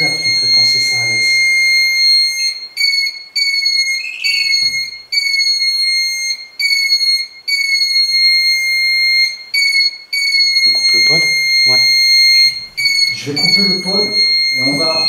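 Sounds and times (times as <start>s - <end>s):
high piercing electronic alarm beeps: 0.0s - 15.0s.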